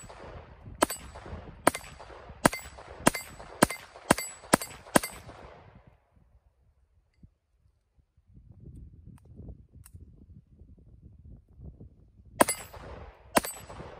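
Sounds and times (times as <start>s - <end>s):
pistol shots with echo: 0.0s - 5.6s, 12.4s - 13.9s.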